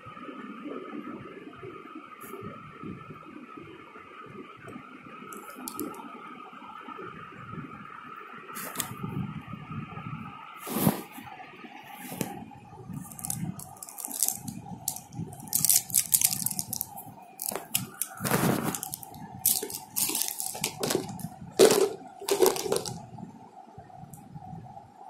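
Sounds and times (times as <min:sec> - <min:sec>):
faint steady hum: 0:00.0 - 0:25.0
plastic stationery rustling and clicking: 0:05.3 - 0:06.0, 0:08.6 - 0:08.9, 0:13.0 - 0:23.0.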